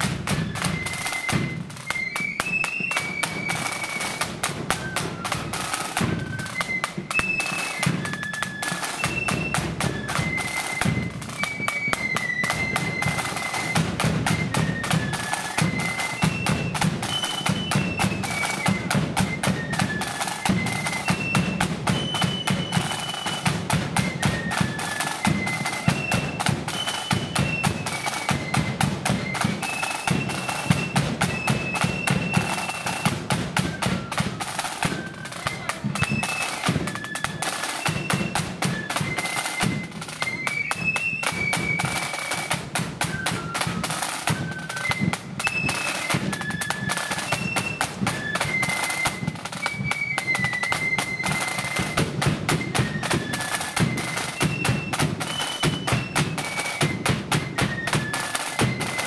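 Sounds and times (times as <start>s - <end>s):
flutes playing high melody: 0.0s - 59.0s
rapid side drum strokes: 0.0s - 59.0s.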